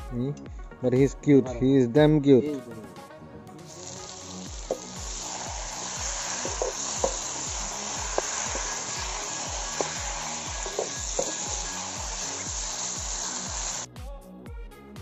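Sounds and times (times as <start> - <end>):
background music with low beat: 0.0 - 15.0
curry sizzling in a pan: 3.7 - 13.9.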